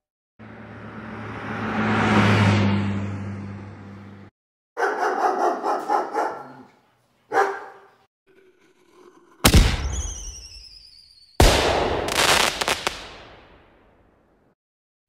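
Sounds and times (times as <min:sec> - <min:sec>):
dog barking: 0:04.8 - 0:08.1
loud booms: 0:09.4 - 0:10.6, 0:11.4 - 0:13.7
crackle of sharp pops: 0:11.4 - 0:13.6.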